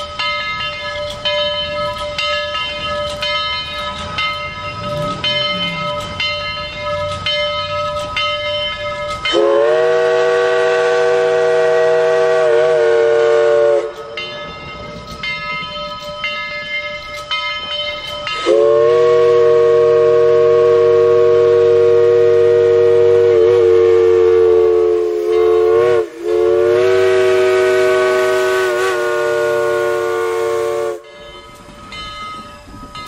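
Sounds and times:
bell ringing: 0.0s - 9.6s, 14.0s - 18.9s, 31.0s - 33.0s
steam whistle blasts: 9.3s - 14.2s, 18.4s - 31.2s.

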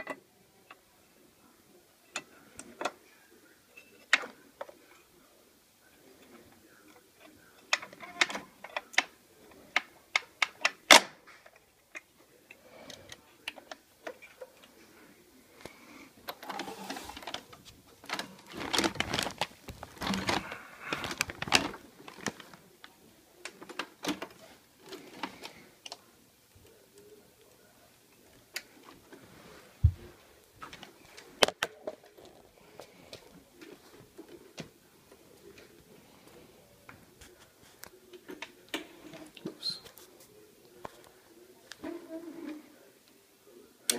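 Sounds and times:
clattering and rustling: 16.3s - 22.6s.

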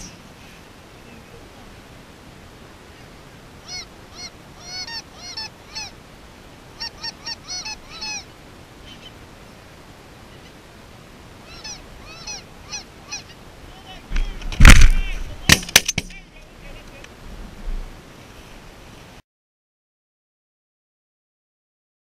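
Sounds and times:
geese honking overhead: 2.9s - 9.2s, 11.3s - 13.8s.

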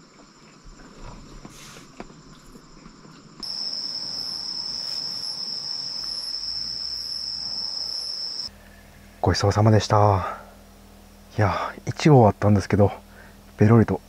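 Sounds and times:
insects high-pitched trill: 3.4s - 8.5s.

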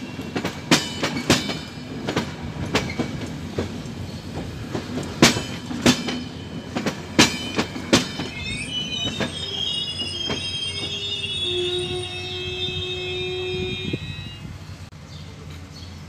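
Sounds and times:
train wheels clacking: 0.0s - 12.0s
high metallic squeal: 6.3s - 14.6s.

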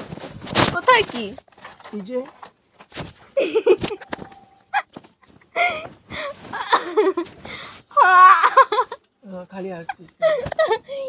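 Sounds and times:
woman laughing: 3.4s - 4.1s, 4.7s - 9.1s, 9.7s - 11.0s.

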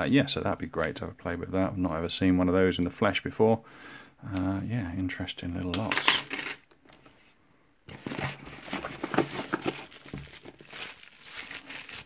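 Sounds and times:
bubble wrap crinkling: 7.9s - 12.0s.

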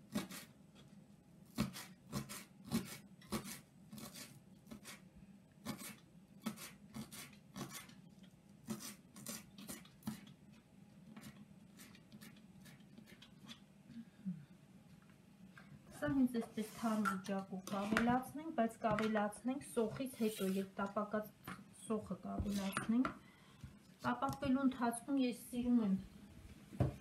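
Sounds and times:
knife chopping on plastic mat: 1.5s - 5.0s.

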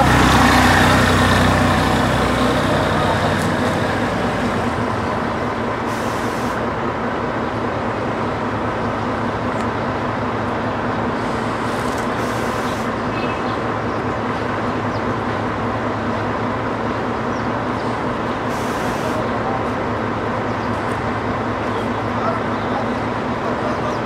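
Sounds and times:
bus engine idling: 0.0s - 24.0s
short air hisses: 5.9s - 6.6s, 11.2s - 12.9s.

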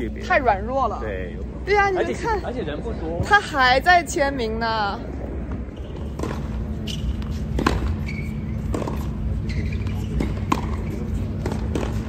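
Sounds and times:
low background noise: 0.0s - 12.0s
tennis balls struck with racquets: 5.4s - 12.0s.

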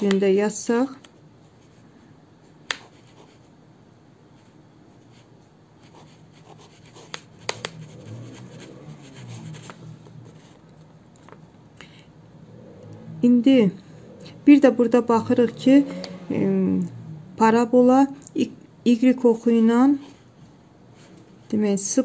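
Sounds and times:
pen scratching on paper: 2.6s - 3.5s, 4.4s - 10.6s.

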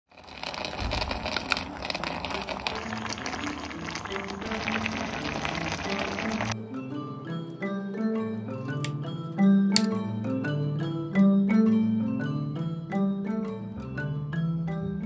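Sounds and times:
sauce bubbling in a pan: 0.1s - 6.6s
light mallet percussion music: 6.6s - 15.0s.

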